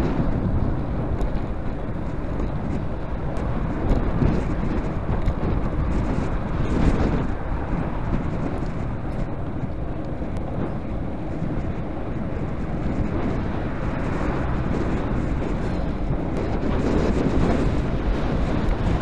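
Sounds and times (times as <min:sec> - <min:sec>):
low road noise: 0:00.0 - 0:19.0
wind buffeting microphone: 0:00.0 - 0:19.0.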